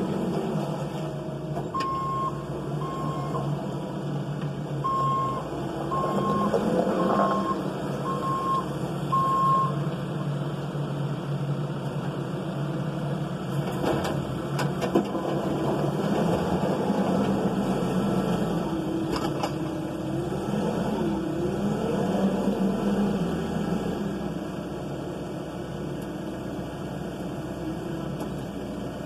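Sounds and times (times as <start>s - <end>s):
diesel engine running: 0.0s - 29.0s
reverse alarm beep: 4.8s - 6.5s, 7.3s - 9.8s.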